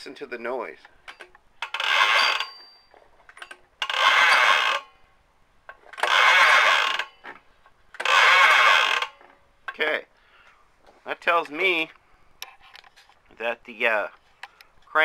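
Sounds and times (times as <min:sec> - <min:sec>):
recoil pull-starter whirr: 0:01.2 - 0:02.8, 0:03.4 - 0:05.0, 0:05.8 - 0:09.2.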